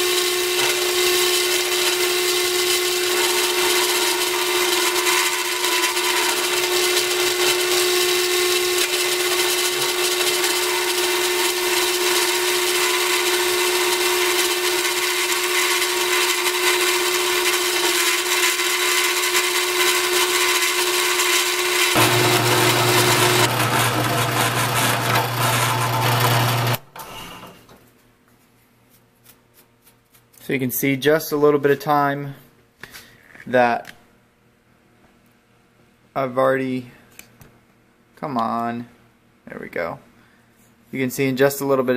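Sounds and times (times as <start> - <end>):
milling bit cutting steel: 0.0 - 27.6
drill press whining: 0.0 - 27.7.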